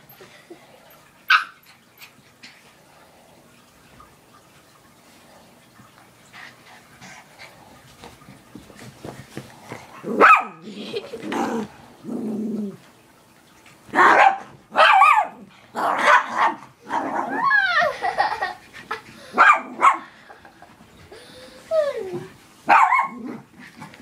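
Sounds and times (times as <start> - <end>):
dogs barking and yipping: 1.2 - 2.2, 10.2 - 11.0, 14.0 - 18.7, 19.3 - 20.2, 22.6 - 23.5
dogs scuffling: 7.5 - 10.1
dog growling: 9.6 - 12.9.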